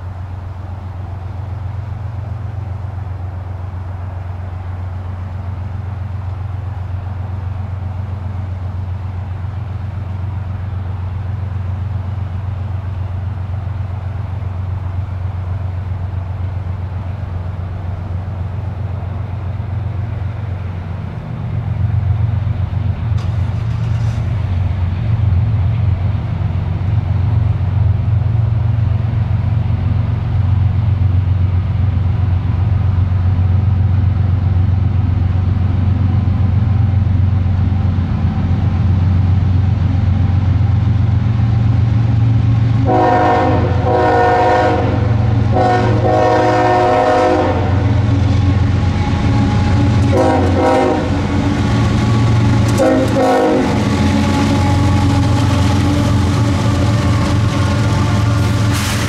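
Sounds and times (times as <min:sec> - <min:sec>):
locomotive engine drone: 0:00.0 - 0:59.0
rail and wheel noise: 0:00.0 - 0:59.0
train air horn blasts: 0:42.8 - 0:48.1, 0:49.1 - 0:59.0.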